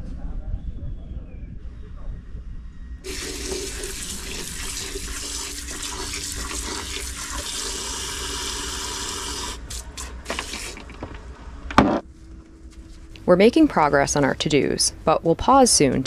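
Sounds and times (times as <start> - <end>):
hose water pouring into bucket: 3.0 - 11.0.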